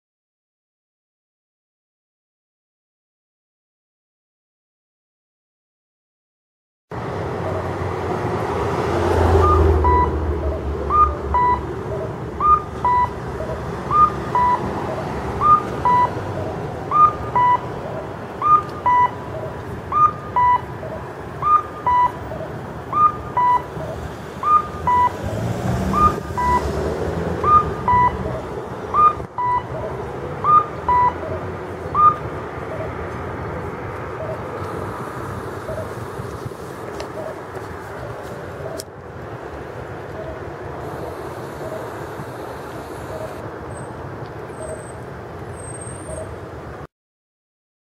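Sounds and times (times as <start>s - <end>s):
traffic: 6.9s - 46.9s
two-note cuckoo crossing signal: 9.3s - 11.7s, 12.4s - 14.7s, 15.4s - 16.2s, 16.9s - 17.7s, 18.4s - 19.3s, 19.9s - 20.7s, 21.4s - 22.2s, 22.9s - 23.7s, 24.4s - 25.2s, 26.0s - 26.8s, 27.4s - 28.4s, 29.0s - 29.8s, 30.4s - 31.4s, 32.0s - 32.9s.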